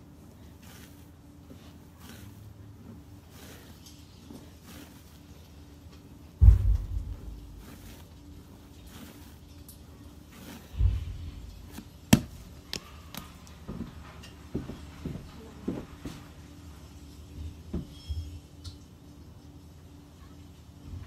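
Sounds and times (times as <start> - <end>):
hands kneading dough: 0.0 - 13.8.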